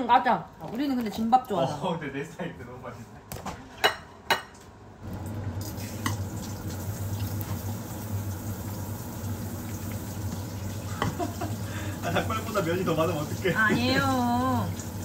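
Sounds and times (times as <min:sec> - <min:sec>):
soup pot humming and hissing: 0:04.9 - 0:15.0.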